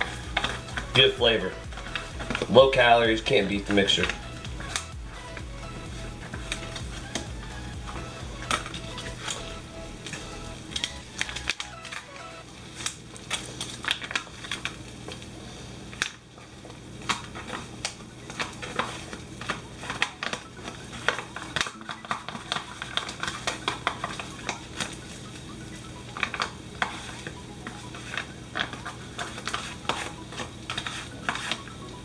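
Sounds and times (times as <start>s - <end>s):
spatula scraping and tapping: 0.0s - 7.4s, 26.2s - 31.8s
steady low hum: 0.0s - 12.1s
foil pouch crinkling: 10.8s - 15.0s, 16.9s - 25.3s, 26.2s - 31.6s.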